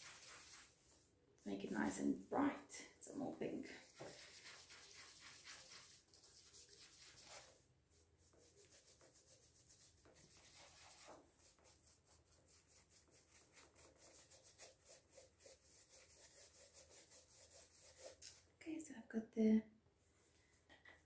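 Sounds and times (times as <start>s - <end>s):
paintbrush rubbing strokes: 0.0s - 1.1s, 3.8s - 18.4s.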